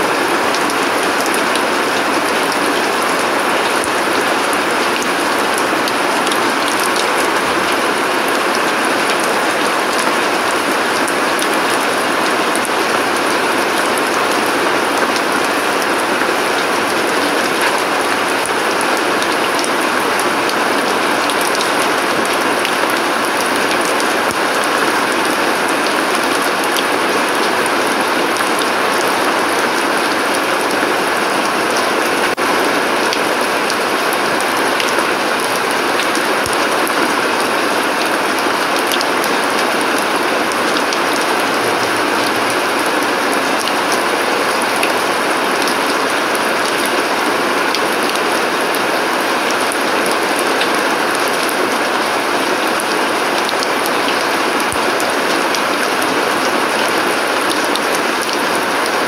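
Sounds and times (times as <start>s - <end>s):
steady rain on paving and leaves: 0.0s - 59.0s.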